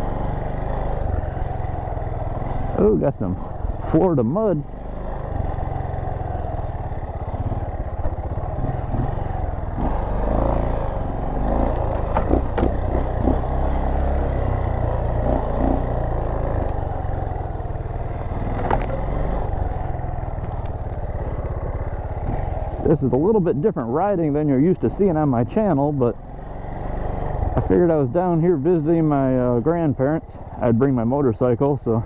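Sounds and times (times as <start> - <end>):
dirt bike engine running: 0.0 - 32.0
bike knocks and rattles: 11.6 - 13.5, 18.4 - 19.1, 27.4 - 27.8.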